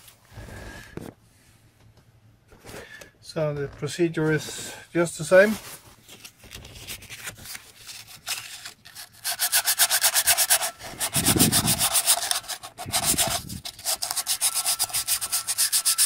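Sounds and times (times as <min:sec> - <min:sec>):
sandpaper scrubbing metal: 0:08.1 - 0:16.0.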